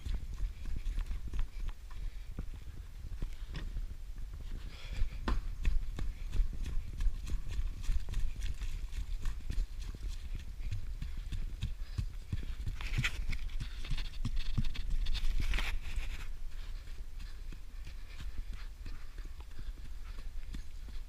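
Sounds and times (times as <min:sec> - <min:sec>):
footsteps on muddy trail: 0:00.0 - 0:21.0
wind rumble on microphone: 0:00.0 - 0:21.0
puffs of breath: 0:04.5 - 0:05.5.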